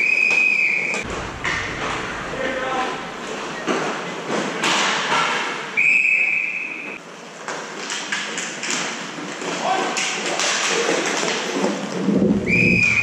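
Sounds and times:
clatter of play on rink floor: 3.8s - 5.8s, 7.4s - 12.1s
referee's whistle blast: 5.8s - 7.0s.

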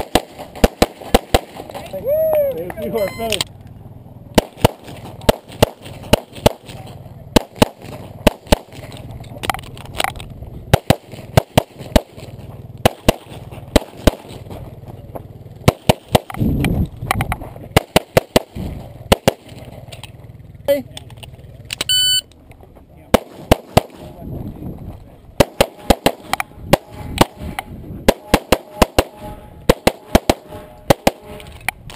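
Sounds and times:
pistol shots: 0.0s - 1.8s, 4.3s - 9.0s, 10.7s - 14.5s, 15.6s - 16.4s, 17.7s - 19.8s, 23.1s - 24.2s, 25.4s - 31.6s
rumbling noise: 3.5s - 31.9s.

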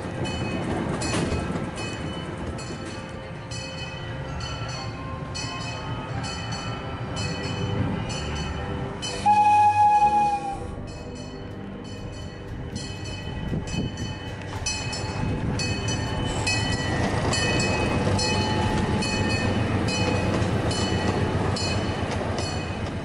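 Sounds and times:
wheels clicking over rail joints: 0.0s - 4.0s, 11.8s - 23.0s
miniature train rumbling past: 0.0s - 23.0s.

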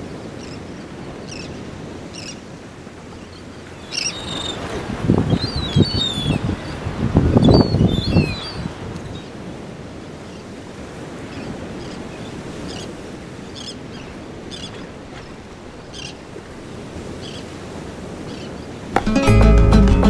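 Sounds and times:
moving water: 0.0s - 19.3s
wind: 0.0s - 20.0s
flamenco acoustic guitar music: 19.0s - 20.0s.

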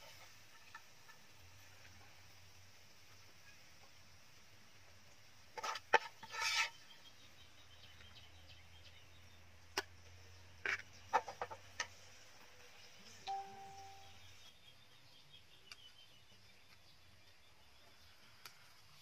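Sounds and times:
metal spatula scraping ceramic plate: 5.6s - 6.9s.

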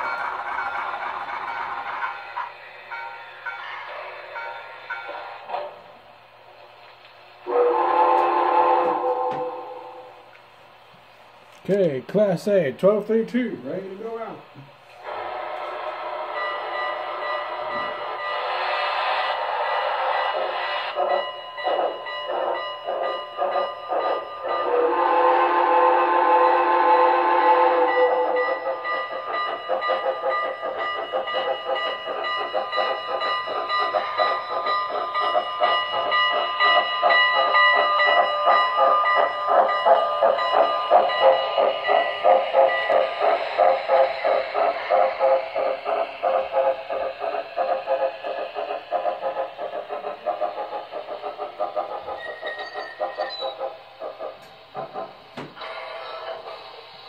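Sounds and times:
steam locomotive exhaust chuffing: 0.0s - 57.0s
steam whistle: 7.4s - 10.2s, 24.6s - 28.7s.

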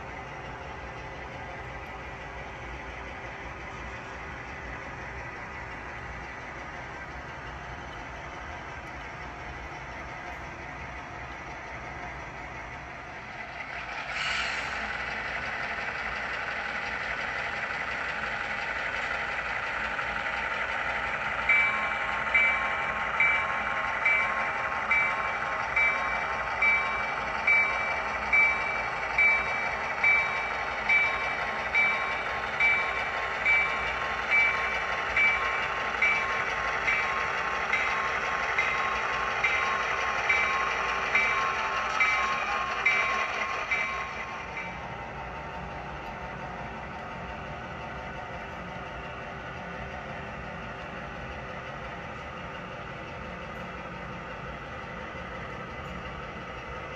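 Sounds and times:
model locomotive engine drone: 0.0s - 56.9s
locomotive bell ringing: 20.4s - 44.9s.

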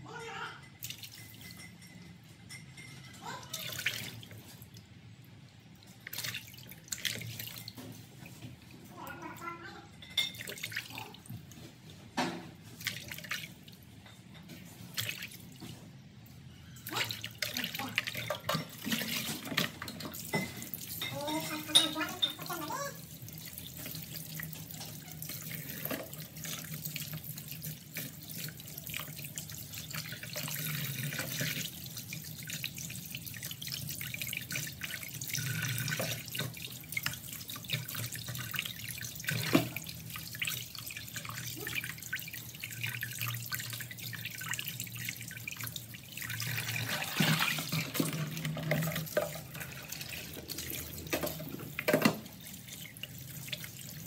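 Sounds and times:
water splashing in basin: 3.2s - 4.8s, 5.8s - 9.5s, 10.2s - 11.8s, 12.5s - 13.9s, 14.6s - 15.8s, 16.8s - 54.0s
tap running into basin: 16.9s - 54.0s.

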